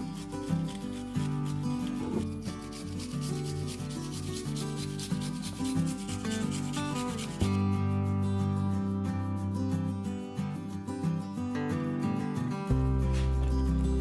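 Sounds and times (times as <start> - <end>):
garlic rasped on a metal grater: 0.0 - 7.6
background music: 0.0 - 14.0.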